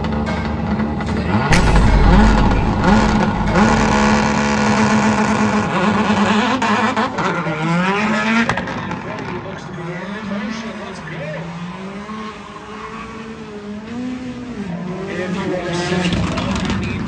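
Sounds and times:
deep boom: 1.5s - 6.2s.

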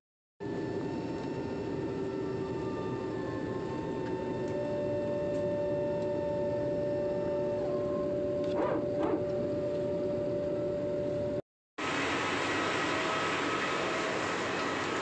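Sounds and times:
whining tones: 0.6s - 11.4s
short blips: 8.4s - 9.4s.

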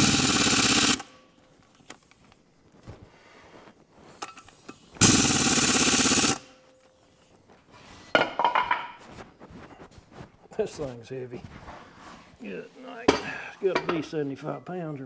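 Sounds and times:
pneumatic impact wrench hammering: 0.0s - 1.2s, 4.2s - 6.6s.

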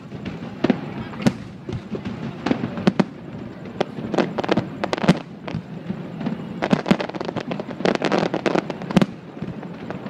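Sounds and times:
fireworks bangs and pops: 0.0s - 10.0s.

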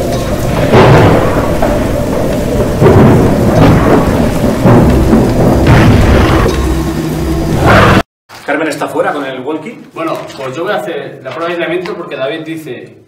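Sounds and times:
heavy rain: 0.0s - 8.0s
thunder rolling: 0.0s - 8.0s.

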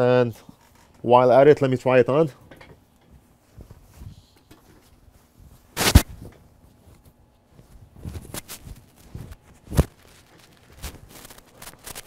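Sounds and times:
fabric rustling: 4.9s - 12.0s.

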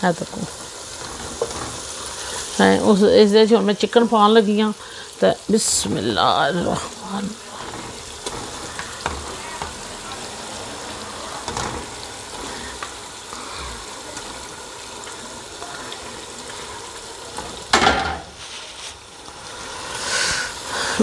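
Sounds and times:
chicken sizzling in hot oil: 0.0s - 21.0s
wooden spoon scraping pot: 0.9s - 2.6s, 6.0s - 9.9s.

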